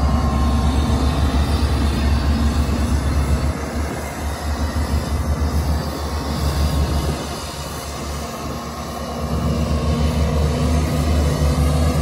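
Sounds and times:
heavy diesel engine rumbling: 0:00.0 - 0:12.0.

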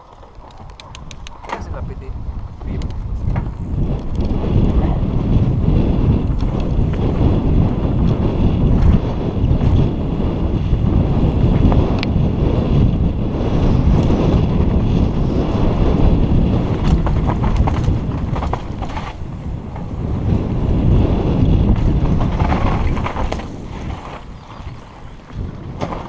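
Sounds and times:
bike clicks and rattles: 0:00.0 - 0:26.0
wind buffeting microphone: 0:00.0 - 0:26.0.

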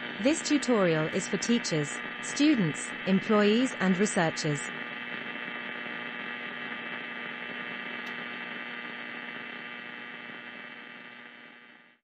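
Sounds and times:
steady buzzing hum: 0:00.0 - 0:12.0.

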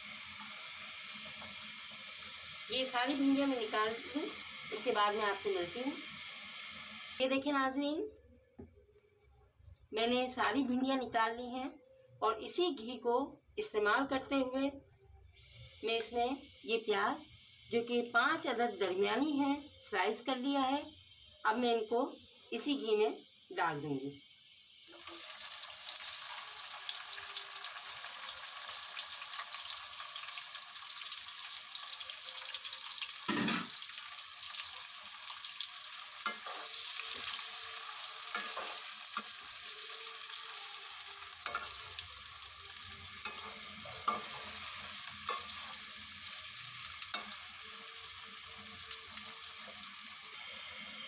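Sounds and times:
onions sizzling in a pot: 0:00.0 - 0:08.0, 0:15.3 - 0:51.0
metal spoon scraping a pot: 0:43.2 - 0:45.7.

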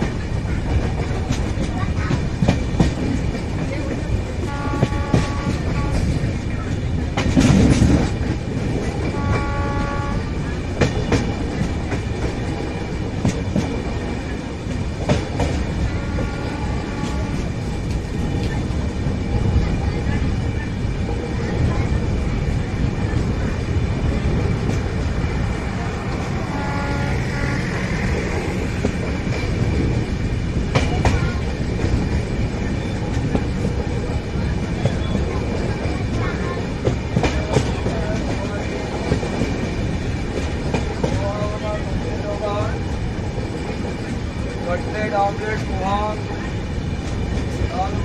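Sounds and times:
train wheel clicks: 0:00.0 - 0:09.6, 0:28.1 - 0:42.0
train rumbling along track: 0:00.0 - 0:48.0.

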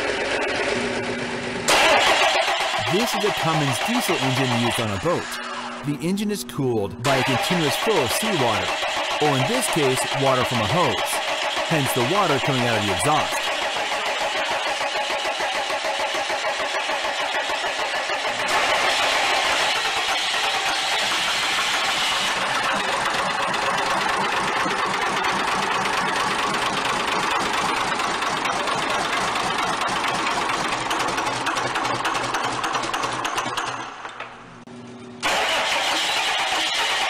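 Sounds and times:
diesel engine running: 0:00.0 - 0:31.8.

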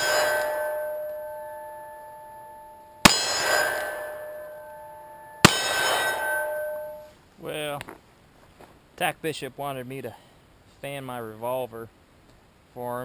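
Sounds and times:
metallic ringing: 0:00.0 - 0:07.2.

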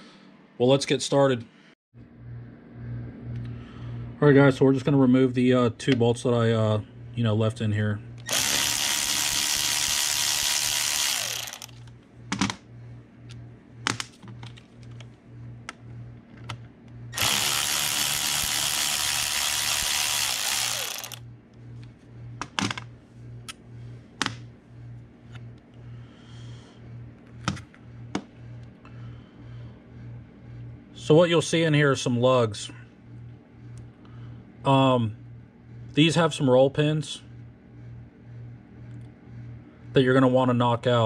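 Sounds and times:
power drill spinning: 0:08.2 - 0:11.9, 0:17.2 - 0:21.2.

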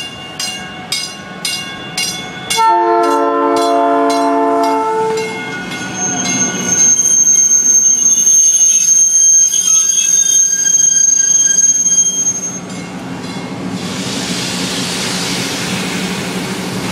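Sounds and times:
train cars rushing and rumbling: 0:00.0 - 0:16.9
train horn: 0:02.6 - 0:05.4
train wheels squealing on rails: 0:04.6 - 0:16.2.

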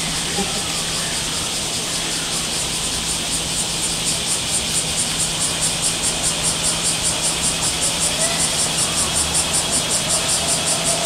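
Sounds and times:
cicadas buzzing: 0:00.0 - 0:11.0.

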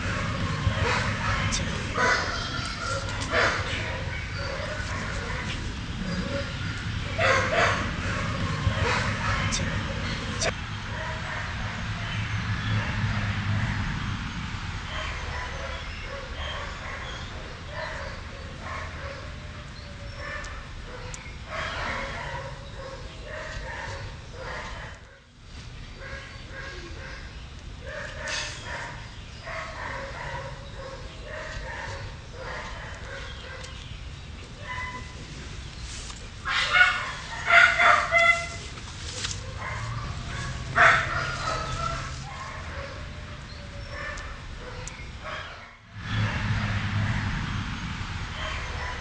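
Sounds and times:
dog barking and yipping: 0:00.0 - 0:05.6, 0:07.1 - 0:11.9, 0:14.9 - 0:19.4, 0:20.1 - 0:25.1, 0:27.8 - 0:33.8, 0:34.6 - 0:35.2, 0:36.5 - 0:46.8, 0:48.3 - 0:49.0.

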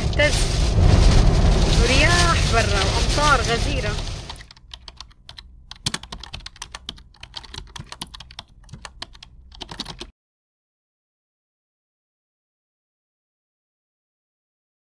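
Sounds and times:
keyboard typing: 0:03.7 - 0:10.1.

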